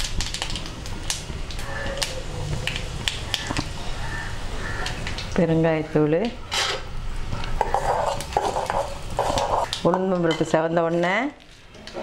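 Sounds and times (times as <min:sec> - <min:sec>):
seeds sizzling in hot oil: 0:00.0 - 0:06.0.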